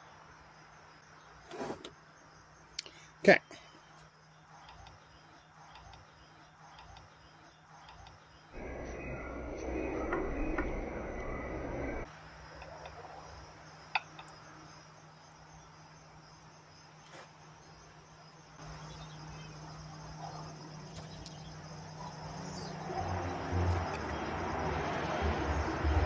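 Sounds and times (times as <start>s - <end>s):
crickets chirring: 0.0s - 26.0s
low steady hum: 8.6s - 12.1s.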